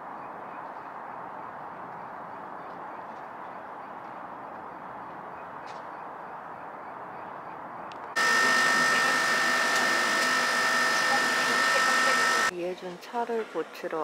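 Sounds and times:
outdoor background noise: 0:00.0 - 0:14.0
machine electric hum: 0:08.1 - 0:12.5
high whining tones: 0:08.2 - 0:12.5.

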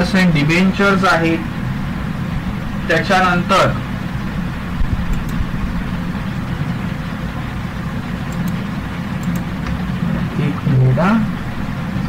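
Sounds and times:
low machine-like hum: 0:00.0 - 0:12.0
faint ticks: 0:08.3 - 0:08.6, 0:09.2 - 0:09.7.

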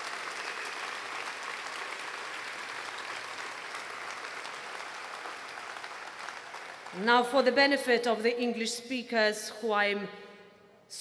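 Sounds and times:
crowd applauding: 0:00.0 - 0:07.0.

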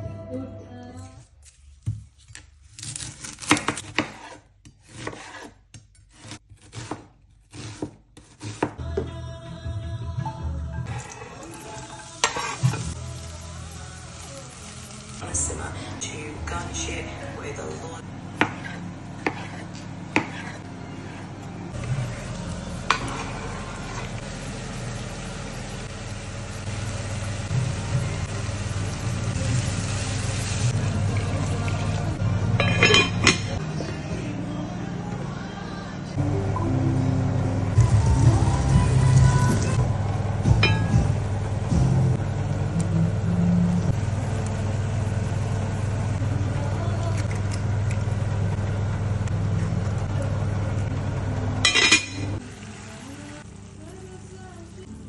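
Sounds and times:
knife slicing onion: 0:02.6 - 0:08.8, 0:18.4 - 0:21.3.

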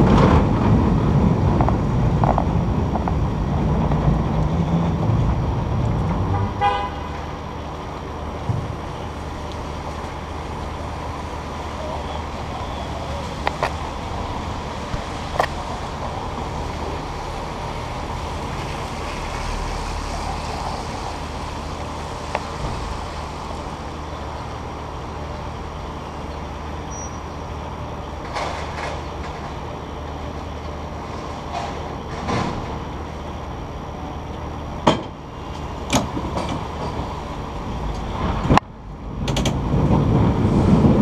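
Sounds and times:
low hum and rumble: 0:00.0 - 0:41.0
cable car clicks and knocks: 0:34.8 - 0:37.2, 0:37.9 - 0:40.1.

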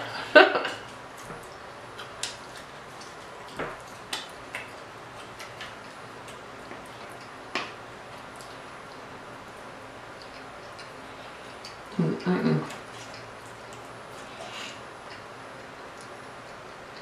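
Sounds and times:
chewing clicks and smacks: 0:00.9 - 0:12.0, 0:12.7 - 0:14.4, 0:15.0 - 0:17.0.

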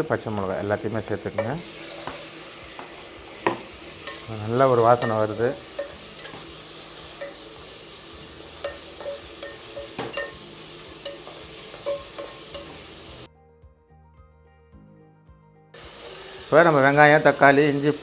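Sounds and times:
vegetables sizzling in hot oil: 0:00.0 - 0:13.3, 0:15.8 - 0:18.0
wooden spatula tapping pan: 0:01.3 - 0:13.3.

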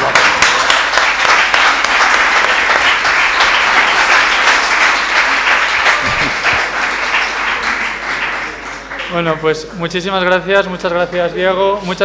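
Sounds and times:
audience applause: 0:00.0 - 0:09.4.

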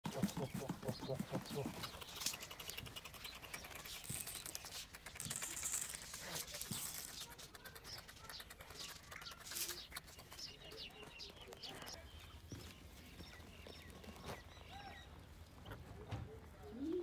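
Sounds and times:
seed pattering on cardboard: 0:00.1 - 0:11.9
faint bird chirps: 0:00.1 - 0:17.0.

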